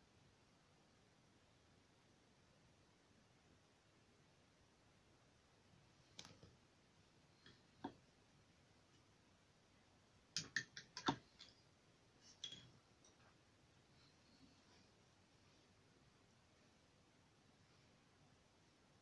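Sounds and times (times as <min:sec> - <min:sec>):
painting gear clicks and taps: 0:10.3 - 0:11.6.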